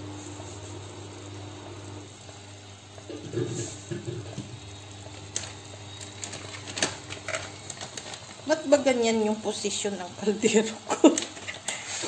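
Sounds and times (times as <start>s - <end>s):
pot sizzling: 0.0s - 12.0s.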